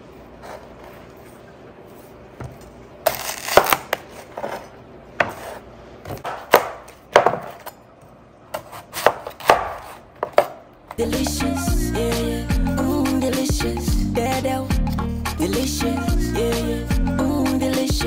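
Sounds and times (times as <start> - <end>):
knife chopping on cutting board: 5.2 - 7.6, 8.6 - 10.6.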